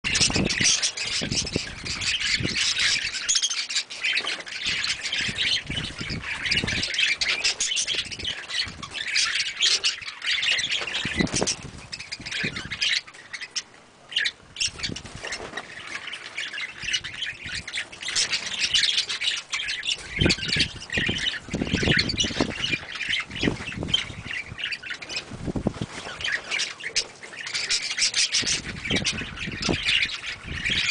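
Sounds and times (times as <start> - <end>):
budgerigars chattering and squawking: 0.1 - 30.9.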